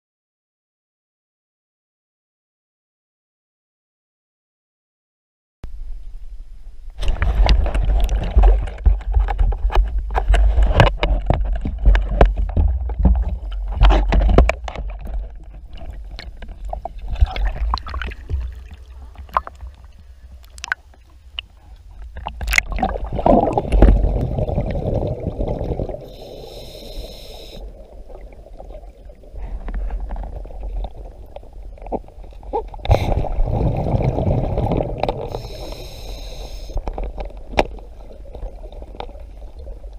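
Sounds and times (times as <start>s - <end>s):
water sloshing and splashing: 7.0s - 26.3s, 27.6s - 35.7s, 36.8s - 39.9s
scuba exhaust bubbling: 15.9s - 39.9s.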